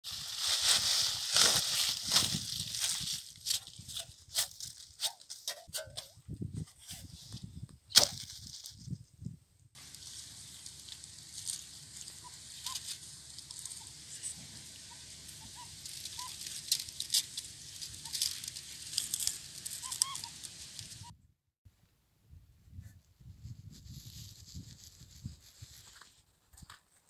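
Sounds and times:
dry leaves rustling and crackling: 0.0s - 5.4s, 8.0s - 9.0s, 9.8s - 21.1s, 23.8s - 26.0s.

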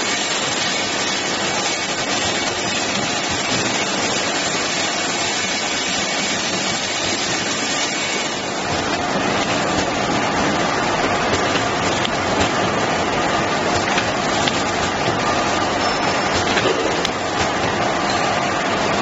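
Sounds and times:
labelling machine hissing: 0.0s - 8.7s.

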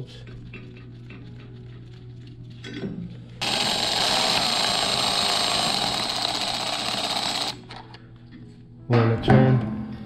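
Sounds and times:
electric ratchet running: 3.4s - 7.8s.

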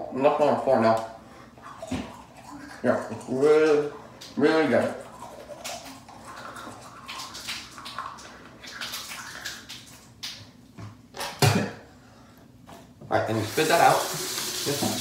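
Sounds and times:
toothbrush scrubbing teeth: 1.5s - 10.0s.

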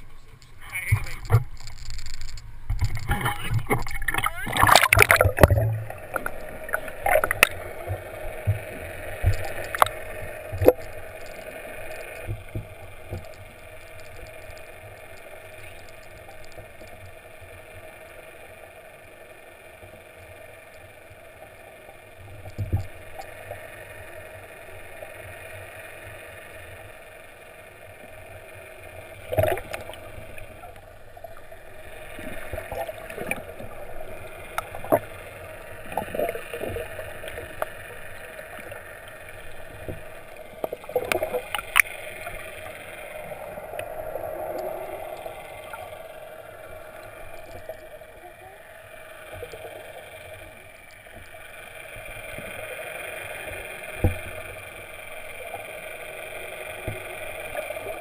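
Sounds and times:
underwater hum and water noise: 0.0s - 58.0s
underwater knocks and bumps: 0.9s - 7.6s.

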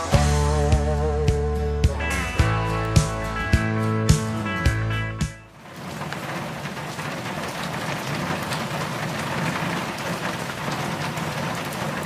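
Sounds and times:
wet road noise: 2.4s - 12.0s
rain on car windshield: 5.5s - 12.0s.

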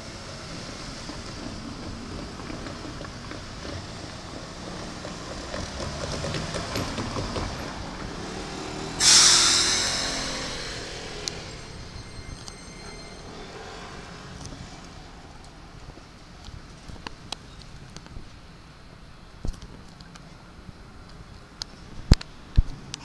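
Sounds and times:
air brakes hissing: 8.9s - 14.1s.

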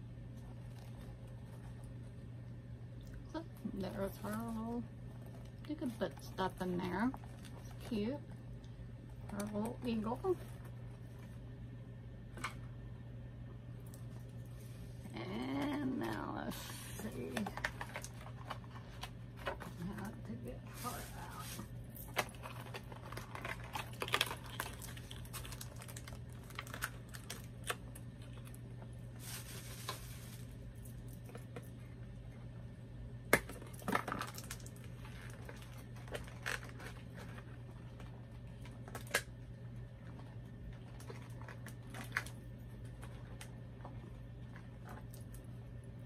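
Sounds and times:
steady low hum: 0.0s - 46.0s
plastic packaging crinkling: 15.6s - 31.7s, 33.3s - 45.8s.

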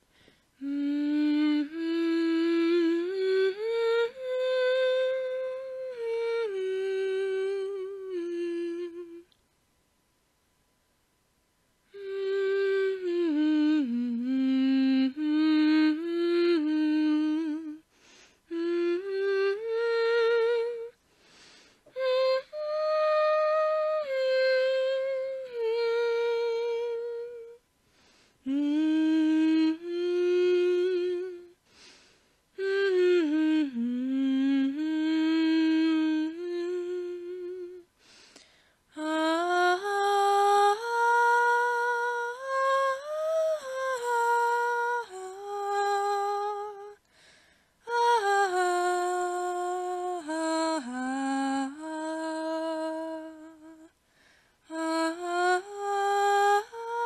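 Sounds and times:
woman humming a tune: 0.6s - 9.4s, 11.9s - 17.9s, 18.5s - 21.0s, 21.9s - 27.6s, 28.4s - 32.0s, 32.6s - 37.9s, 38.9s - 47.1s, 47.8s - 54.0s, 54.6s - 57.0s.

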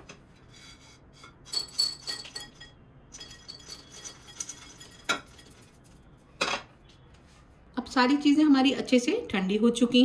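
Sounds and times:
kitchenware clinking and rattling: 1.4s - 6.6s.

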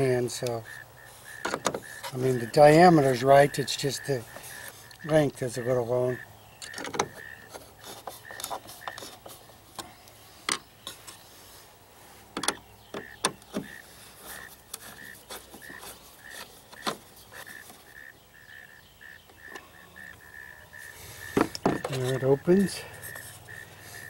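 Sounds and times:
screwdriver clicks and metal scrapes: 6.6s - 9.9s.

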